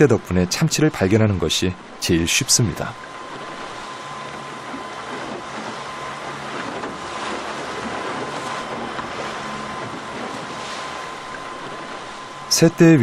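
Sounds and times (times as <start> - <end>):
outboard motor running: 0.0 - 13.0
sea noise: 0.0 - 13.0
wind: 0.0 - 13.0.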